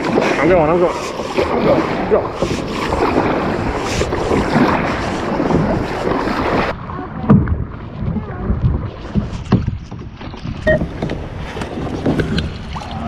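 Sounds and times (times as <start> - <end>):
dull rumble: 0.0 - 13.0
wind on microphone: 0.0 - 13.0
camera rubbing against clothing: 2.3 - 6.2.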